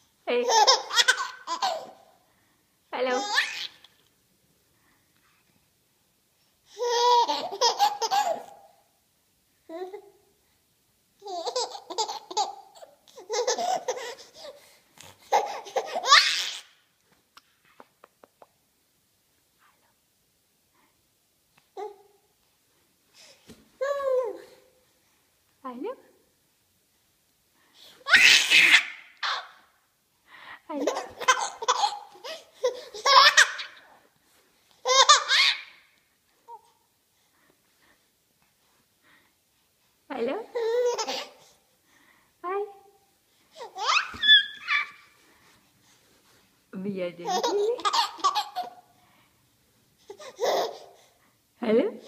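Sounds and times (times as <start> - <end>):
baby giggling: 0.4 - 2.0, 6.8 - 8.6, 11.2 - 14.5, 15.2 - 16.7, 28.1 - 29.6, 30.8 - 33.8, 34.8 - 35.7, 40.5 - 41.4, 43.6 - 45.0, 47.2 - 48.8, 50.1 - 51.0.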